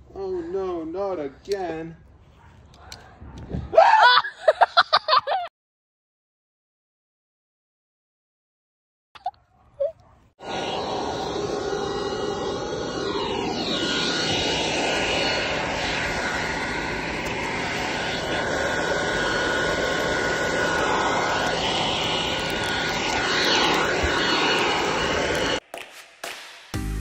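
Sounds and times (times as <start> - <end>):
faint steady whine: 10.4 - 25.6
forge rushing noise: 10.4 - 25.6.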